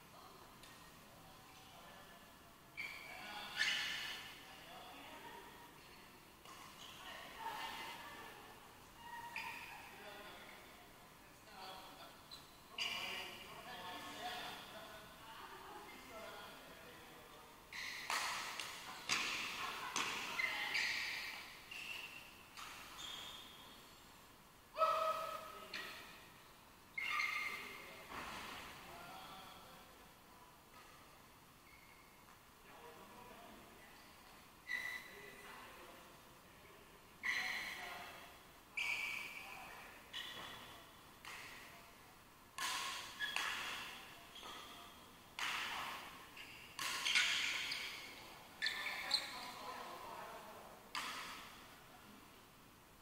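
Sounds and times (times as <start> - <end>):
shoes squeaking on court floor: 2.7 - 4.5, 5.8 - 8.1, 8.9 - 10.7, 11.7 - 14.7, 17.7 - 24.0, 25.4 - 28.8, 30.7 - 32.4, 33.9 - 35.5, 37.2 - 41.7, 42.6 - 50.1.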